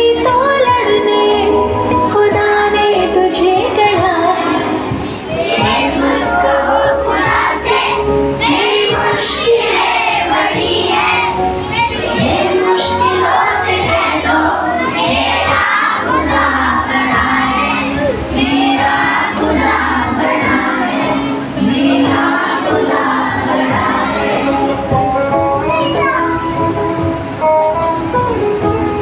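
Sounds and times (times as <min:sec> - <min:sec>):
children singing together: 0:03.2 - 0:25.1.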